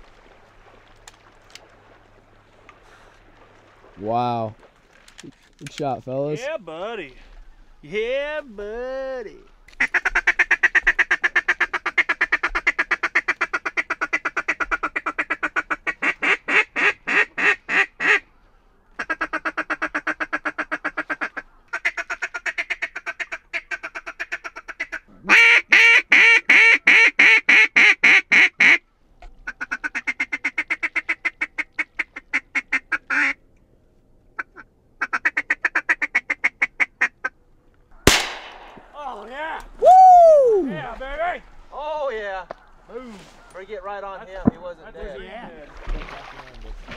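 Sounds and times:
duck call rapid quacks: 9.8 - 18.2, 19.0 - 28.8.

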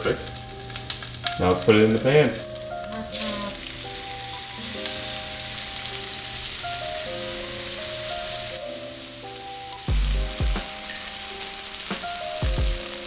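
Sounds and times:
background music with melody: 0.0 - 13.0
fish sizzling in hot oil: 0.0 - 13.0
heavy bass hits: 9.9 - 10.7.

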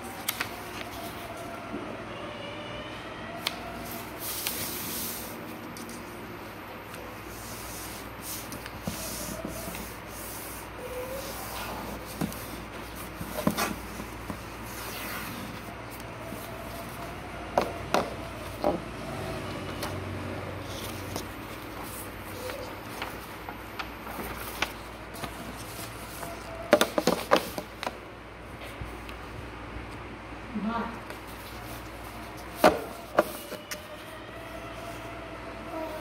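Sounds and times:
paper clicks: 0.0 - 1.3
paper being folded: 0.0 - 1.6, 3.4 - 17.2, 20.6 - 28.0, 31.0 - 34.2.

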